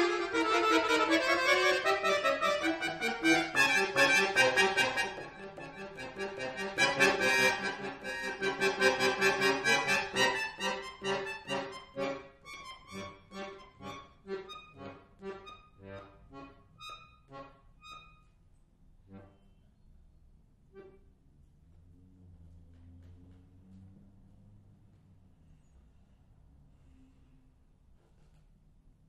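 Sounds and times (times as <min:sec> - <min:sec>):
button accordion playing: 0:00.0 - 0:18.3.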